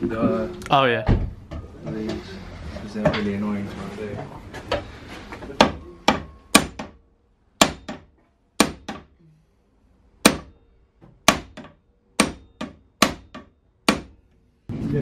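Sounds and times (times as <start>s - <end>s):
hammer striking metal: 5.6s - 7.0s, 7.6s - 9.1s, 10.2s - 14.3s.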